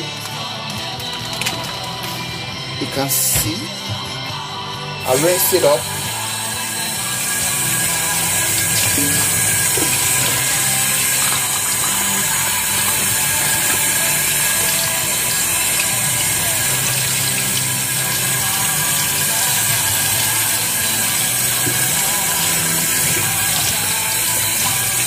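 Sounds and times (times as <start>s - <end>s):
background music: 0.0s - 25.0s
tap running into steel sink: 8.2s - 25.0s.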